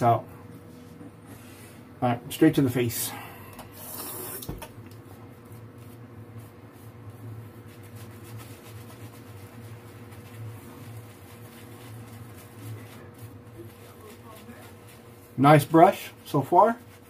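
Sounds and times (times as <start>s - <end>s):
shaving brush scratching on stubble: 5.5s - 17.0s.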